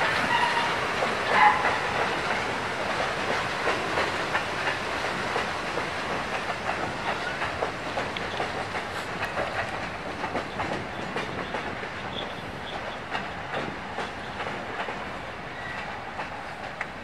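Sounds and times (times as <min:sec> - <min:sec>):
freight train rolling past: 0:00.0 - 0:17.0
wheels clicking over rail joints: 0:00.0 - 0:17.0.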